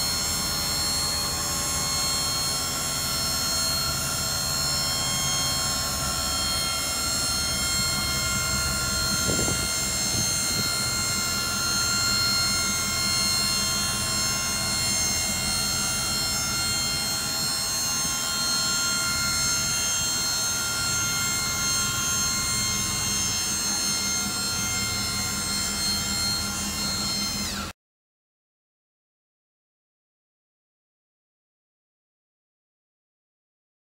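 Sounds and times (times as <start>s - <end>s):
hydraulic pump whine: 0.0s - 27.8s.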